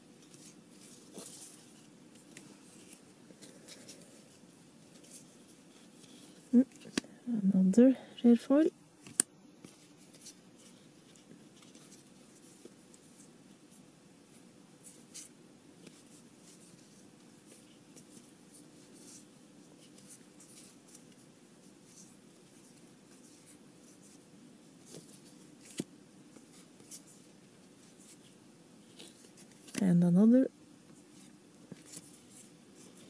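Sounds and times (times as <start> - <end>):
faint steady hum: 0.0 - 33.0
cards sliding and clicking: 9.0 - 10.4.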